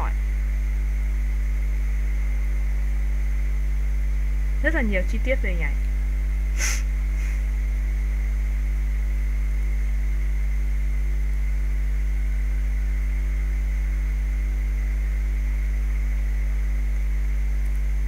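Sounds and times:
electrical mains hum: 0.0s - 18.0s
faint hiss: 6.5s - 7.8s.

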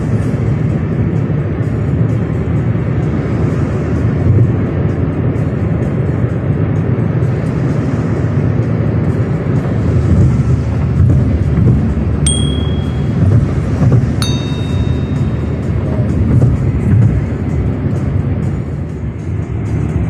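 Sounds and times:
car cabin road and engine noise: 0.0s - 20.0s
short electronic chime: 12.3s - 13.5s, 14.2s - 15.8s
bright bell-like ding: 12.3s - 13.6s, 14.2s - 16.0s.

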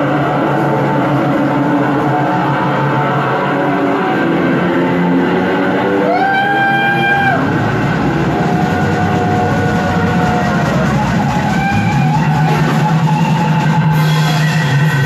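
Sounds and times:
bass line: 0.0s - 15.0s.

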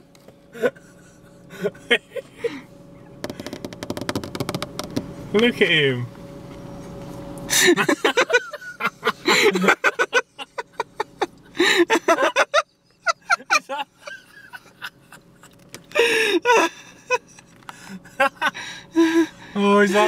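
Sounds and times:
people gasping and laughing: 15.8s - 19.4s.

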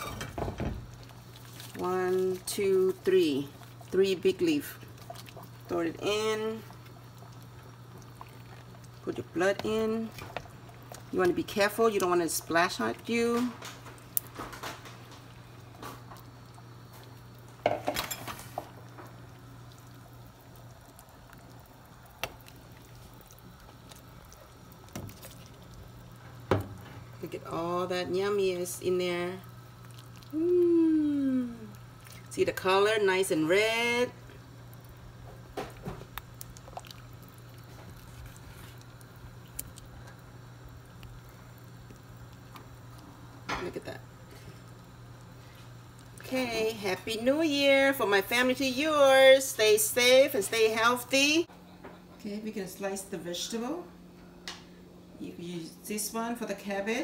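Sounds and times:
steady low hum: 0.0s - 57.0s
soup simmering with pops: 0.3s - 47.9s
quiet liquid sounds: 0.5s - 48.8s.

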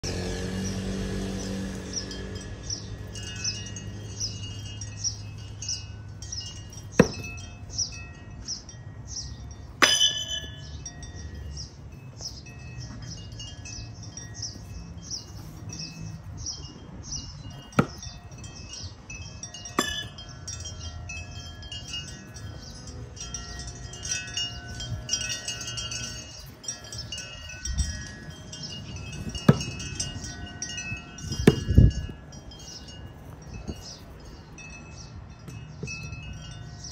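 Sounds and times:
wind chimes tinkling: 0.0s - 36.9s.

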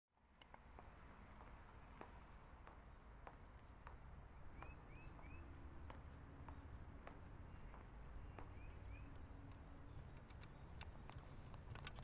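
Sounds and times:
bird chirping: 2.9s - 11.6s.

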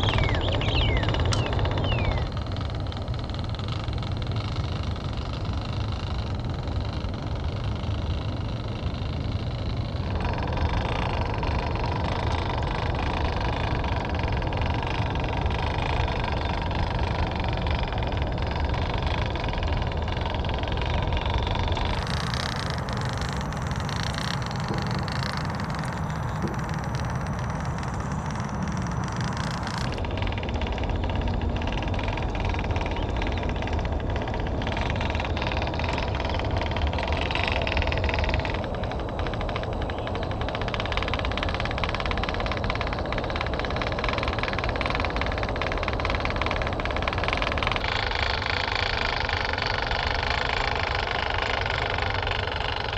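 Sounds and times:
low rumble of toy crawler: 0.0s - 52.9s
small electric motor whining: 0.0s - 52.9s.

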